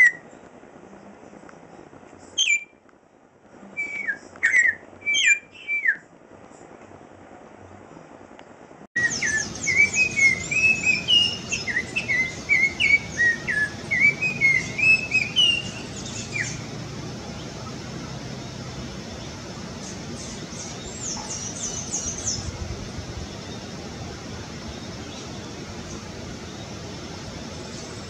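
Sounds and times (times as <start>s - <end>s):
oriole singing: 9.0s - 28.0s.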